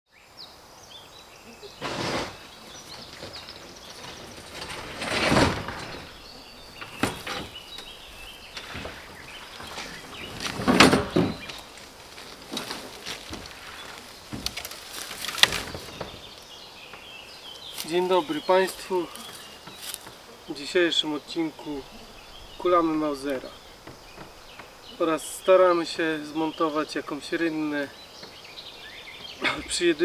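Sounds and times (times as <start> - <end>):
birds chirping faintly: 0.1 - 30.0
hollow knocks and scrapes of tank: 1.8 - 16.4.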